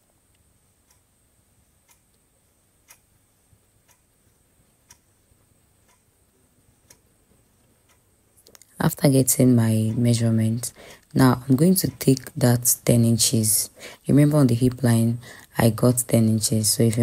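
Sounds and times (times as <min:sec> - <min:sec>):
faint ticks: 0:00.2 - 0:05.2, 0:05.8 - 0:08.8.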